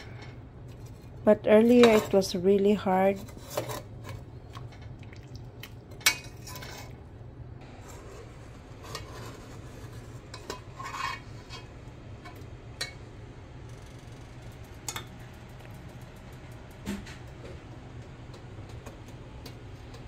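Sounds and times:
metal spoon scraping a pot: 3.0s - 4.2s, 6.1s - 7.0s, 7.7s - 11.8s.

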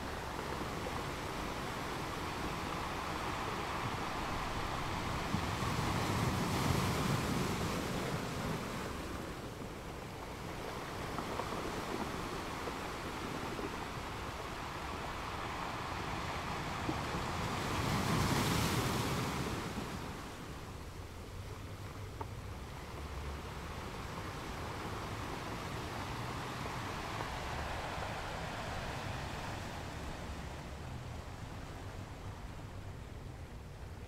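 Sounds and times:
ocean waves on shore: 0.0s - 34.0s.

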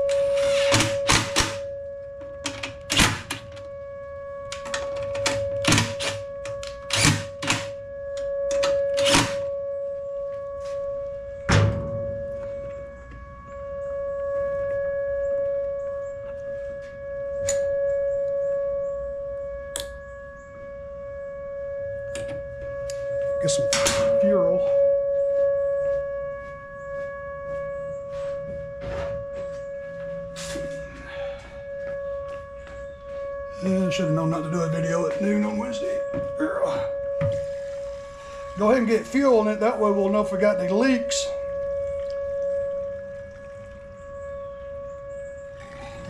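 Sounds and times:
warning siren steady tone: 0.0s - 46.0s.

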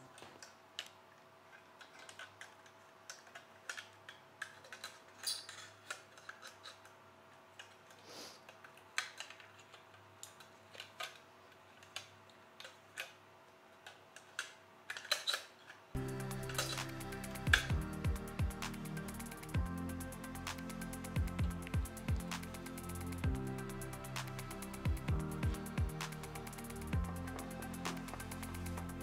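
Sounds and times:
small clicks of metal and plastic: 0.1s - 15.8s.

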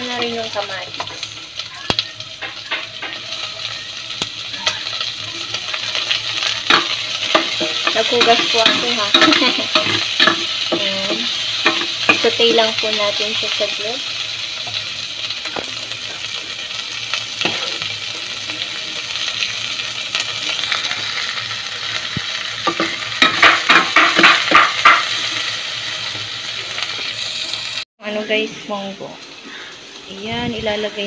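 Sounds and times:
food sizzling in oil: 0.0s - 31.0s
utensil stirring against pot: 6.0s - 13.6s, 22.6s - 25.1s.

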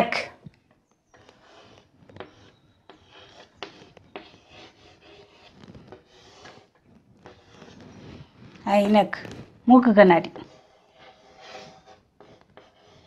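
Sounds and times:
chalk tapping on board: 1.1s - 7.7s, 10.3s - 13.0s
chalk scratching on blackboard: 1.1s - 13.0s.

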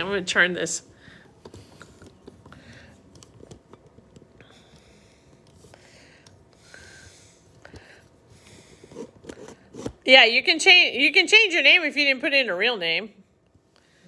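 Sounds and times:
laptop handling clicks and rustling: 1.4s - 6.5s.

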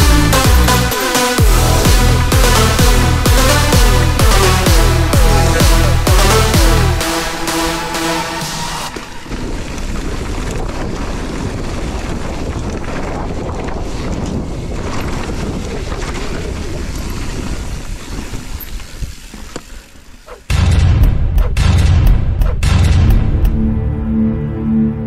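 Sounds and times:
bike tyres rolling on dirt: 8.8s - 20.5s
wind on microphone: 8.9s - 19.7s.

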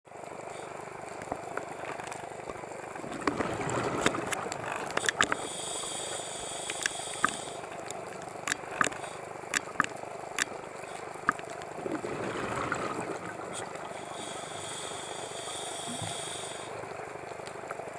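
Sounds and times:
underwater hiss: 5.1s - 7.8s, 12.0s - 17.0s
whistling regulator inhale: 5.4s - 7.6s, 14.0s - 16.8s
sharp clicks: 6.7s - 10.6s
bubbly diver exhale: 11.8s - 16.8s.

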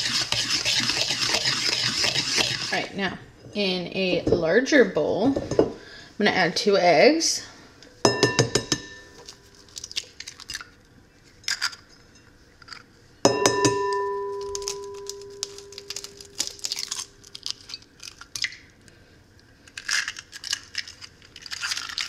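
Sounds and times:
egg knocking on ringing bowl: 8.1s - 9.2s, 13.3s - 16.0s
eggshell clicks and crackles: 9.6s - 10.7s, 14.5s - 18.8s, 19.6s - 22.0s.

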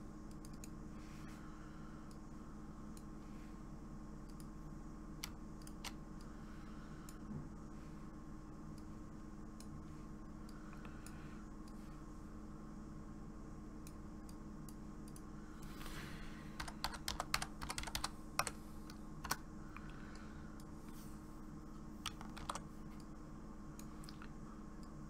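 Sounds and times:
computer keyboard typing: 16.6s - 18.6s, 19.2s - 19.4s, 22.0s - 22.7s.

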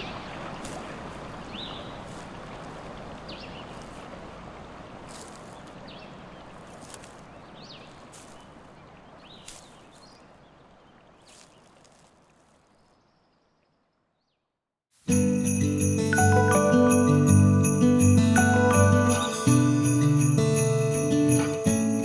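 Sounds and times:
jingling bells: 15.1s - 22.0s.

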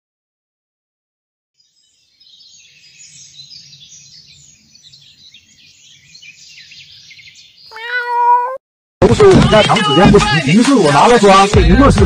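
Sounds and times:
small birds chirping: 1.6s - 8.6s.

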